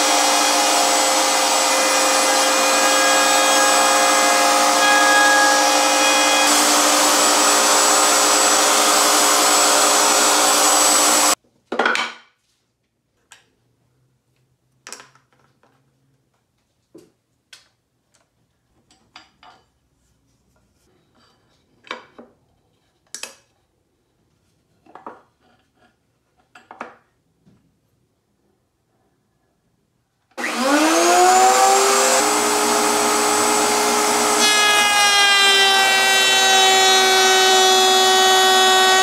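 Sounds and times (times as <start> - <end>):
router cutting wood: 0.0 - 11.4, 30.4 - 39.0.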